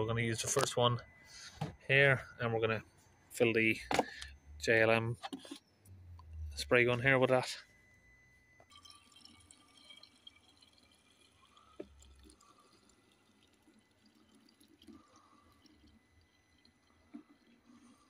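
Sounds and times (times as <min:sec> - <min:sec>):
faint trickle of liquid: 0:08.4 - 0:18.0.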